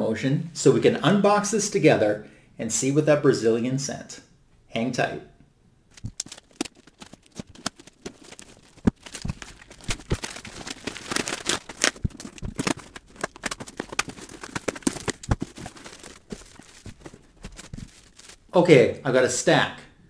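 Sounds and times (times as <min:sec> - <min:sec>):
cardboard parcel being opened: 0:05.9 - 0:18.6.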